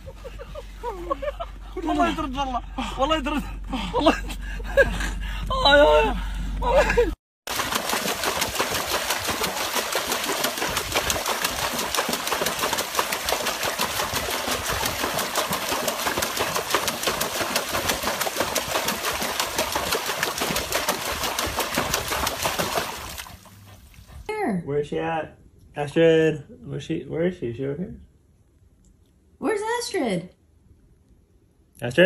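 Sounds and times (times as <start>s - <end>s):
water splashing in tub: 7.5s - 23.9s.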